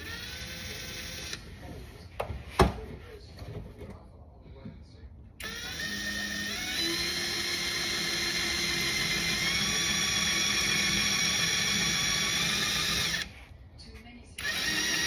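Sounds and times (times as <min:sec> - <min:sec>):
cordless drill boring: 0:00.0 - 0:01.4, 0:05.4 - 0:13.3, 0:14.4 - 0:15.0.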